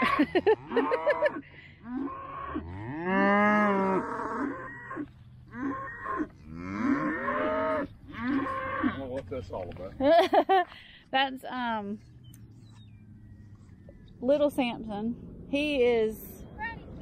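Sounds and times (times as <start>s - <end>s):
calf mooing: 1.9s - 9.1s.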